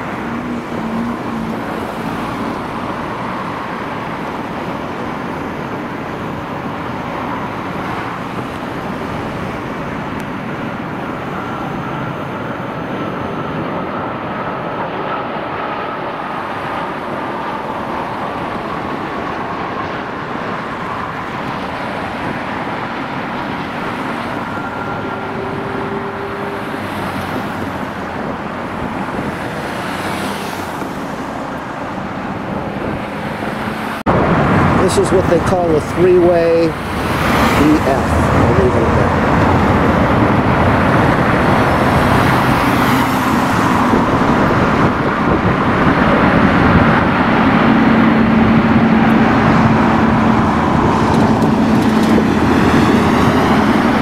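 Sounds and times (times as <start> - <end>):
dense road traffic: 0.0 - 54.0.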